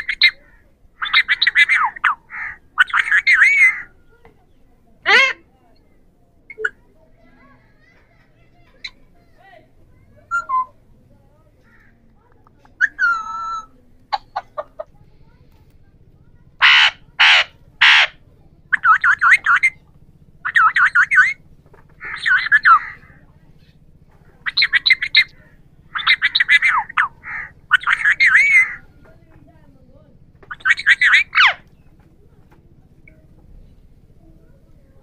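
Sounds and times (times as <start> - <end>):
parakeet warbling chatter: 0.0 - 4.2, 5.0 - 5.5, 12.7 - 14.9, 16.5 - 29.1, 30.4 - 31.9
parakeet harsh screeches: 1.0 - 3.9, 16.6 - 18.2, 22.0 - 23.1, 24.5 - 28.8, 30.5 - 31.6.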